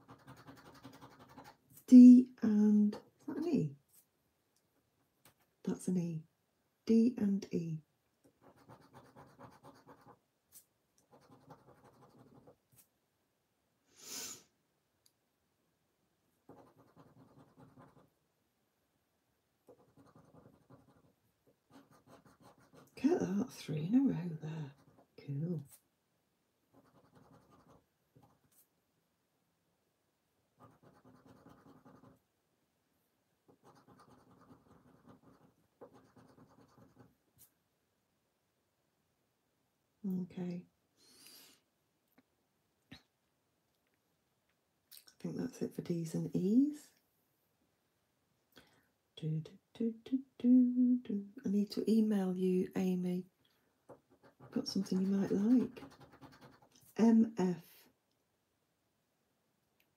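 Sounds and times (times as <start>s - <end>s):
poker chip scratching scratch card: 0.0s - 1.6s, 8.4s - 12.9s, 16.5s - 18.1s, 19.7s - 21.1s, 21.7s - 23.0s, 26.8s - 28.6s, 30.6s - 32.2s, 33.5s - 37.1s, 54.0s - 56.8s
scratch card scraping: 0.0s - 1.6s, 54.0s - 56.8s.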